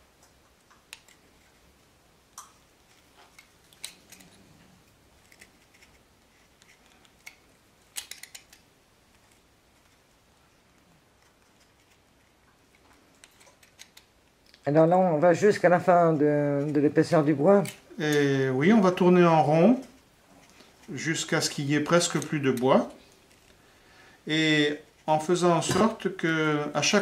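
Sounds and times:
knife shaving wood: 0:02.7 - 0:14.6, 0:16.5 - 0:23.7.

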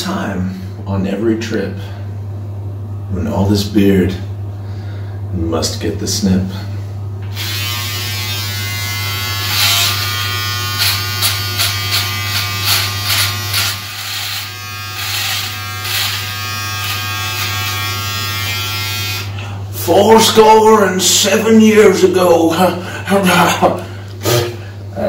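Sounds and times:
electric shaver buzzing: 0:07.2 - 0:19.4
shaver crackling through beard: 0:09.0 - 0:19.3.

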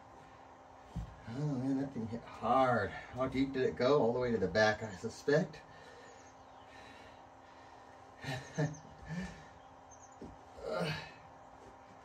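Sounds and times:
faint steady hum: 0:00.0 - 0:12.0
man grunting and exhaling: 0:10.6 - 0:11.2.

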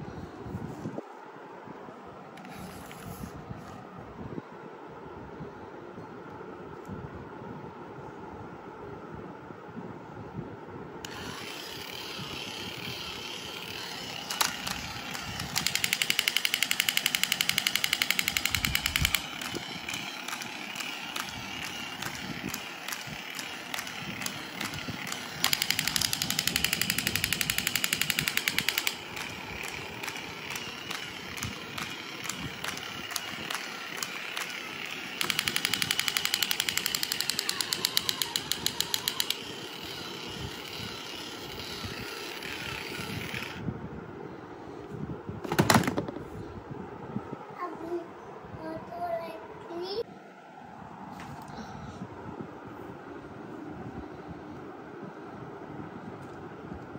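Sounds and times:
toy motor whirring: 0:11.0 - 0:43.6
electronic machine-gun sound effect: 0:13.8 - 0:40.2.

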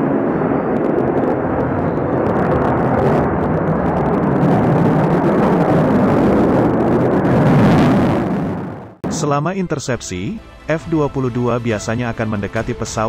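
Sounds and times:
jet flying overhead: 0:00.0 - 0:09.2.

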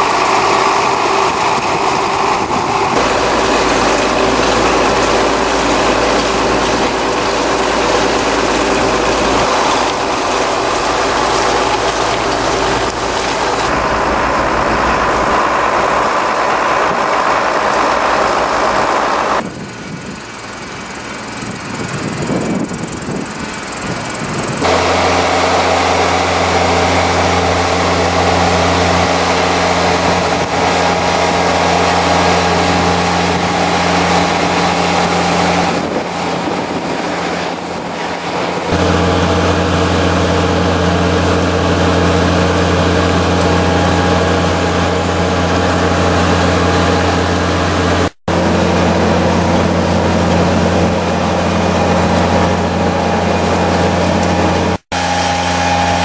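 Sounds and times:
tractor engine droning: 0:00.0 - 0:56.0.

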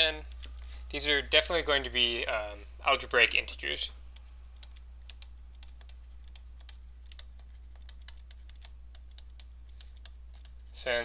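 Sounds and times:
steady low hum: 0:00.0 - 0:11.0
stylus tapping on pen tablet: 0:04.1 - 0:10.6.

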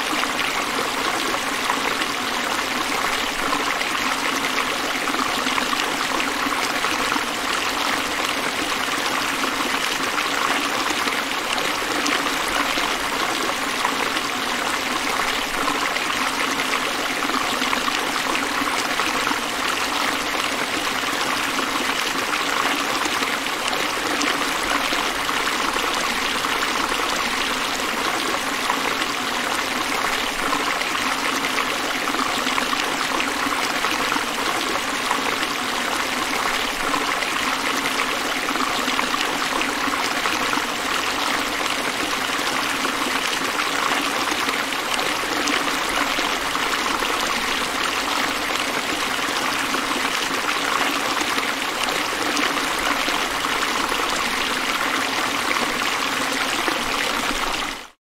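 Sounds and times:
river water flowing: 0:00.0 - 0:58.0.

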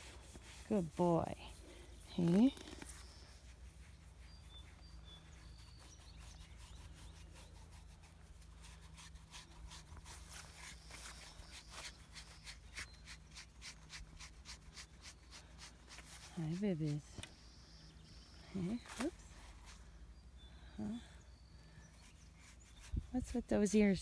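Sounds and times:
hand rubbing fur: 0:00.0 - 0:17.4
quick irregular crackles: 0:02.1 - 0:03.4.

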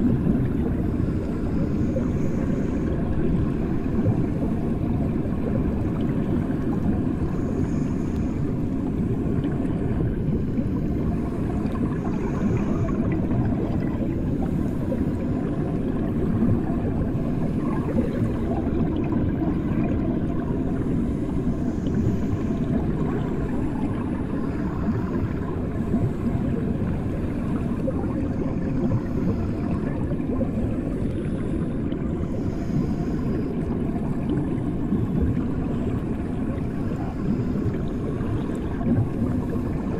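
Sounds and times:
muffled underwater rumble: 0:00.0 - 0:39.9.

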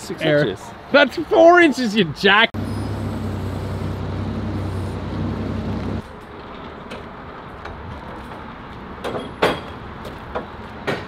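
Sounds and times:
forklift engine running: 0:02.6 - 0:06.0.

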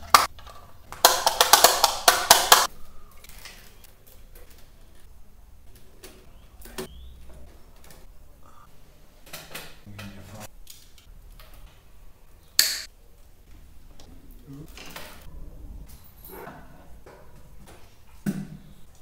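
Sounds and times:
sharp loud snap: 0:12.6 - 0:12.9.

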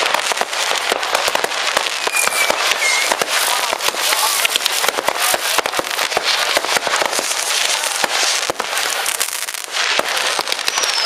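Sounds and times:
fireworks and firecrackers crackling: 0:00.0 - 0:11.0.

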